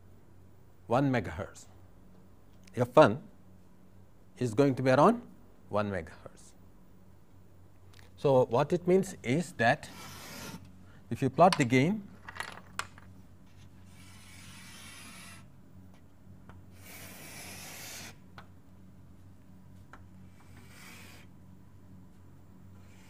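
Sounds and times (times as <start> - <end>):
faint steady hum: 0.0 - 23.0
pen scratching paper: 9.8 - 10.6, 13.9 - 15.5, 16.8 - 18.2, 20.4 - 21.3.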